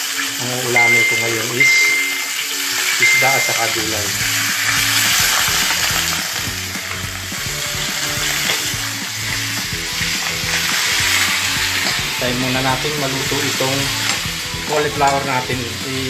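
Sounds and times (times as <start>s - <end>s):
fish sizzling in hot oil: 0.0s - 16.0s.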